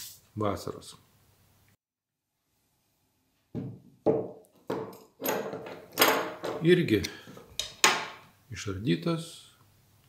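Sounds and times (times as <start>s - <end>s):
parts knocking on wooden table: 3.5s - 6.6s, 7.3s - 8.2s
person speaking: 6.5s - 7.5s.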